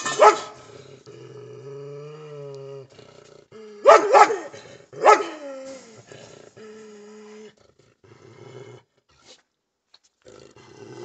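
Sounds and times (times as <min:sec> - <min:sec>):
dog barking: 0:00.2 - 0:00.6, 0:03.8 - 0:05.4.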